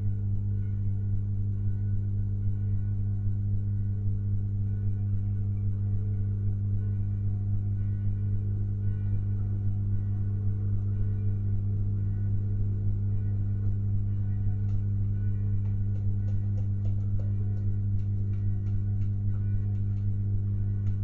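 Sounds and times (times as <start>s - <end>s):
electrical mains hum: 0.0s - 21.0s.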